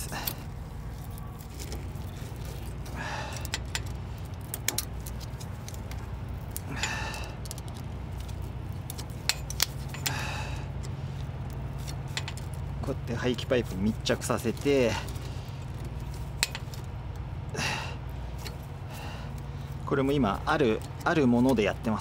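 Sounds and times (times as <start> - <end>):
low background rumble: 0.0 - 22.0
wire scraping rustles: 0.0 - 22.0
metallic clicks of wire: 2.8 - 12.8, 14.4 - 21.9.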